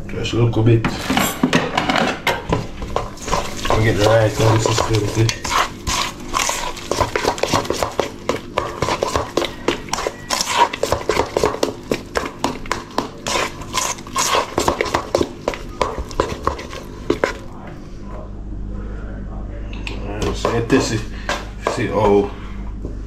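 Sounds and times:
hand kneading wet dough: 2.9 - 17.6.

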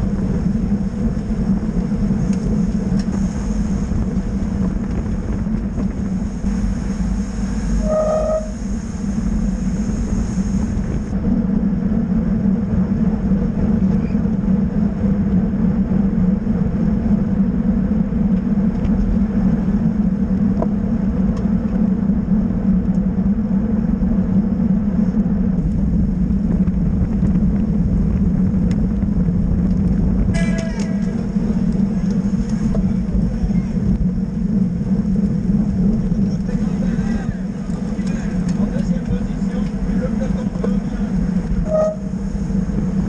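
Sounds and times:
road and wind rumble: 0.0 - 43.0
short high toot: 7.7 - 8.7, 41.6 - 42.2.

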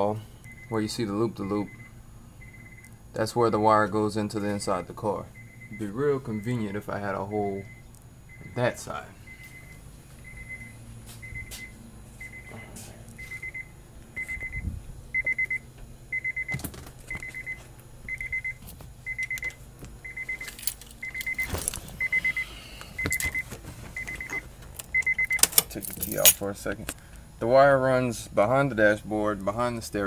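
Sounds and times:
car warning chime beeping: 0.4 - 3.0, 5.3 - 25.5.

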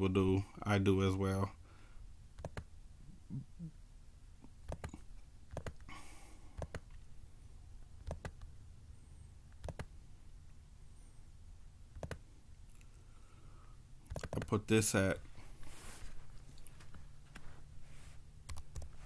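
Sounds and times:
computer mouse clicking: 2.4 - 2.7, 4.6 - 5.9, 6.6 - 7.0, 8.0 - 8.5, 9.5 - 9.9, 11.9 - 12.2, 14.0 - 14.6, 18.4 - 19.0.

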